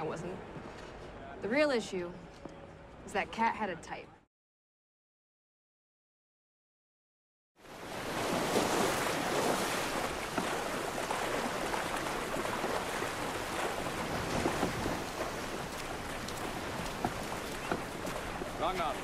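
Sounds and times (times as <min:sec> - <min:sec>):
surf and splashing water: 0:07.6 - 0:19.0.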